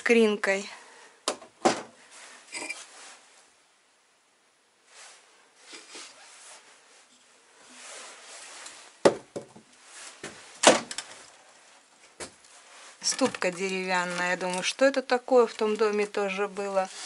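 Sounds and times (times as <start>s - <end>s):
objects knocking: 9.0s - 11.1s, 13.0s - 14.6s
faint handling noise: 9.7s - 17.0s.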